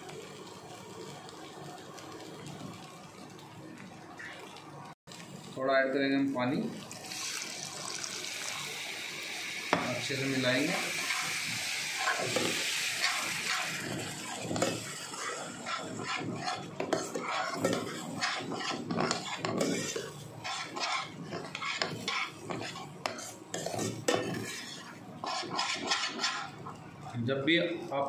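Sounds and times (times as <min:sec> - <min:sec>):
food sizzling: 0:00.0 - 0:27.2
water hissing in hot pan: 0:04.2 - 0:26.7
metal spoon scraping steel pan: 0:14.3 - 0:26.5.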